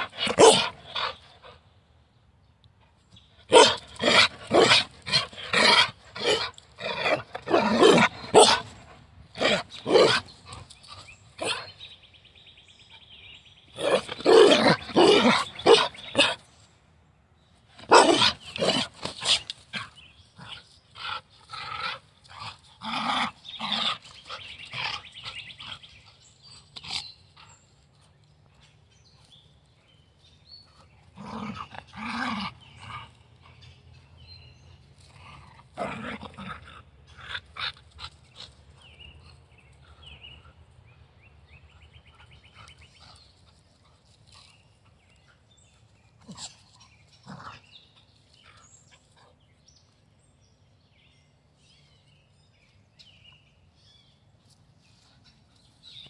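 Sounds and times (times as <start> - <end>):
dog growling and barking: 0.0 - 1.6, 3.5 - 11.7, 13.8 - 16.4, 17.8 - 25.8, 31.0 - 33.2, 35.0 - 38.5, 47.2 - 47.6.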